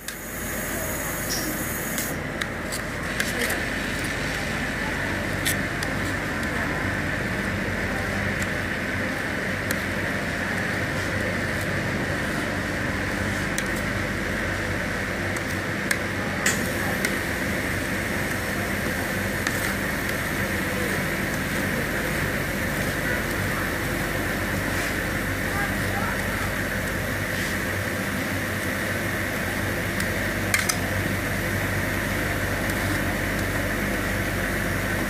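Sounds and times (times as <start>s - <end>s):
refrigeration unit humming: 0.0s - 35.0s
metal spatula clicking and tapping: 30.5s - 30.8s.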